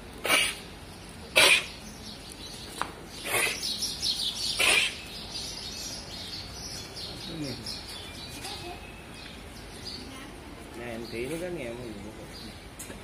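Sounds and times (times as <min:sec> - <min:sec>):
small birds chirping: 0:00.1 - 0:13.0.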